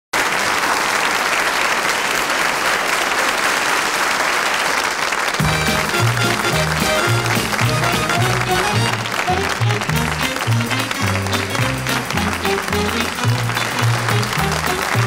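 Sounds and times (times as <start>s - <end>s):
audience applauding: 0.2s - 15.0s
instrumental music with bass line: 5.4s - 15.0s.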